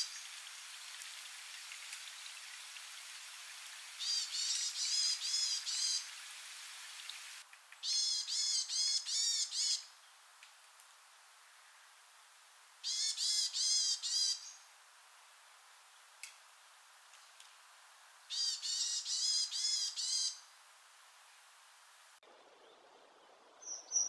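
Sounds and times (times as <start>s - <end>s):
running water hissing: 0.0s - 7.5s
bird calling repeated notes: 7.8s - 9.8s.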